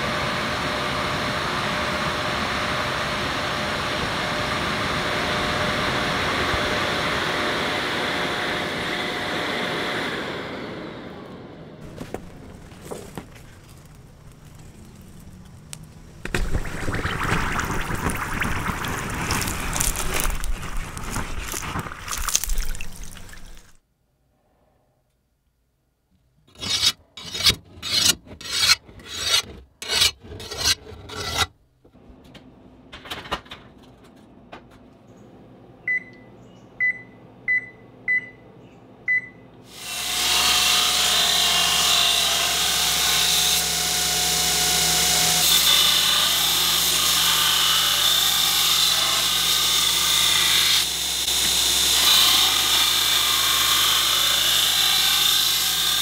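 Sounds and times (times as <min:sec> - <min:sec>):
belt grinder grinding steel: 0:26.5 - 0:31.5, 0:44.5 - 0:56.0
file rasping on steel blade: 0:26.5 - 0:31.5.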